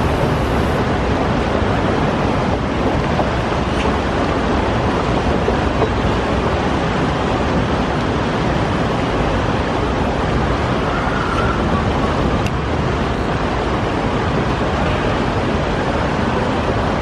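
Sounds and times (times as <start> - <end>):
water rushing down concrete channel: 0.0 - 17.0.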